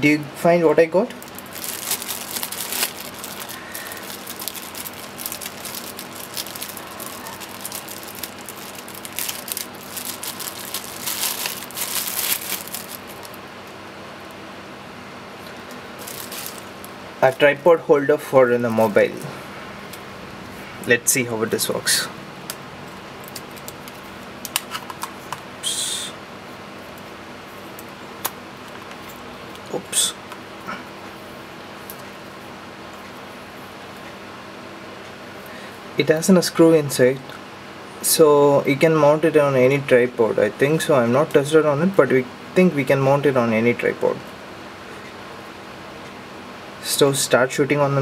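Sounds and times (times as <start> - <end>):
plastic bag crinkling: 1.2 - 13.4, 16.0 - 17.6.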